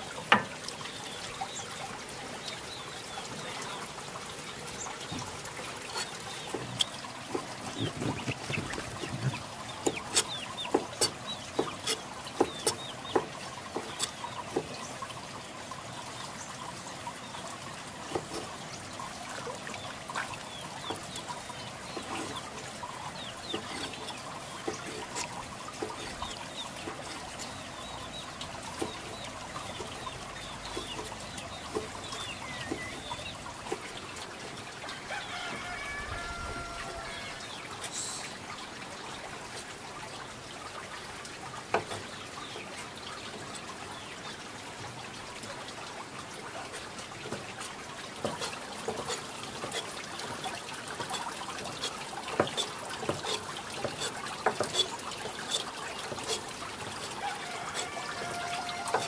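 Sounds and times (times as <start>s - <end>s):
water trickling: 0.0s - 59.0s
chickens clucking: 3.2s - 15.1s, 18.0s - 38.4s, 47.4s - 59.0s.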